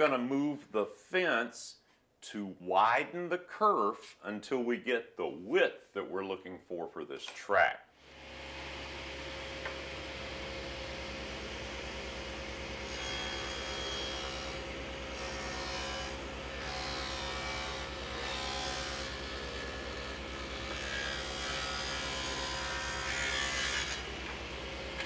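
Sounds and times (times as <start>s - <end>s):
table saw cutting wood: 8.0s - 25.0s.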